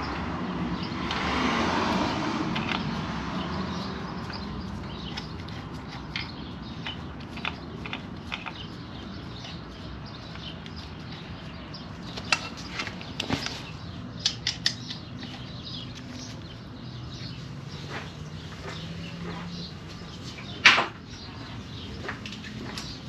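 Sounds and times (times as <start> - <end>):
tools clicking and tapping: 0.8 - 16.5.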